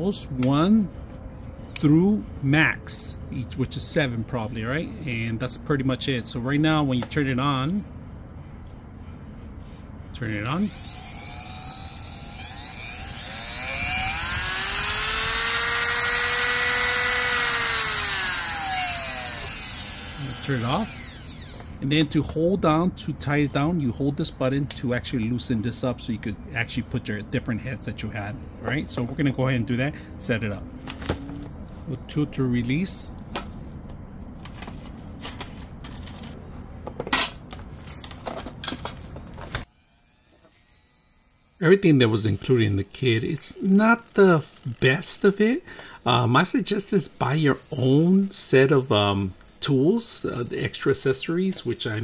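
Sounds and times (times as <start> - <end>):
rotary tool motor whining: 10.5 - 21.8, 37.6 - 52.0.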